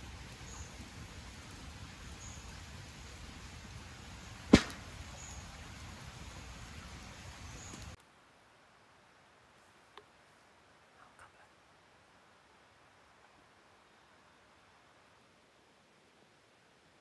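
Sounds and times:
steady low hiss: 0.0 - 17.0
sharp loud crack: 4.5 - 5.0.

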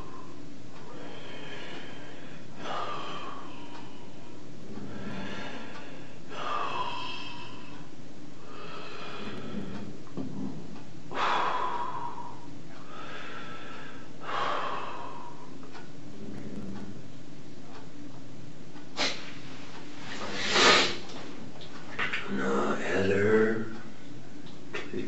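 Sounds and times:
man breathing heavily and sniffling: 0.0 - 17.0, 20.1 - 21.1.

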